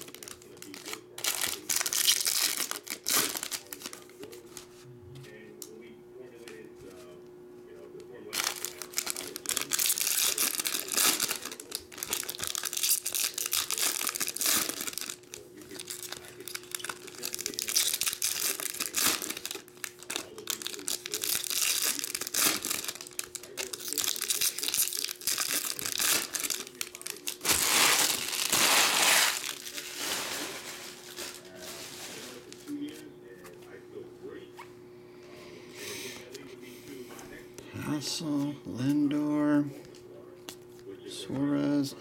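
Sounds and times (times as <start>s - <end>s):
foil wrappers crinkling and tearing: 0.0s - 4.7s, 8.1s - 33.0s.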